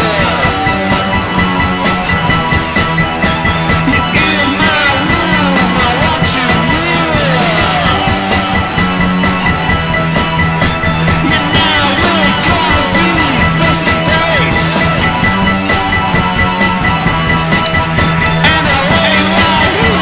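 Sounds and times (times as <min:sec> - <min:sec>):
drums: 0:00.0 - 0:20.0
swooping pitch glides: 0:00.0 - 0:20.0.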